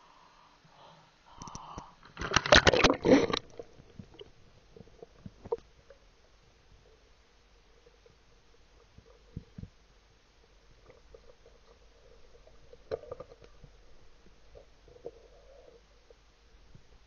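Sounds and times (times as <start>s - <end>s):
faint underwater hum: 0.0s - 17.0s
gear clicking and knocking underwater: 1.4s - 6.0s, 10.7s - 16.9s.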